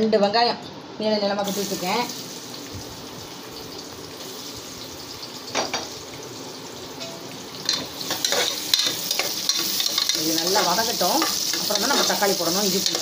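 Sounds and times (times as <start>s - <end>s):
oil sizzling: 1.4s - 13.0s.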